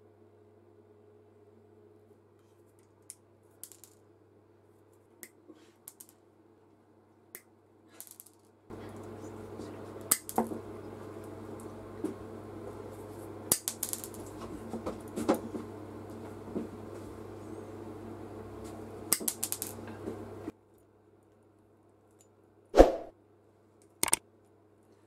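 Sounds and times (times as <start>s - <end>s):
steady background hum: 0.0s - 25.0s
wire clicking against pliers: 10.1s - 10.4s, 23.8s - 24.2s.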